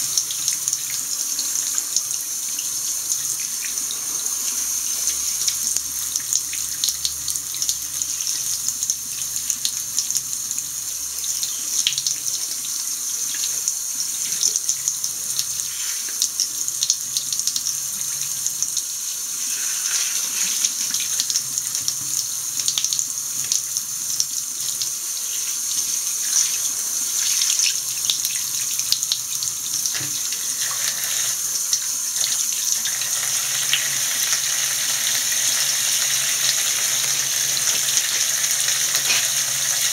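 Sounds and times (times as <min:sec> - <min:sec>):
tap running into washbasin: 0:27.2 - 0:39.9.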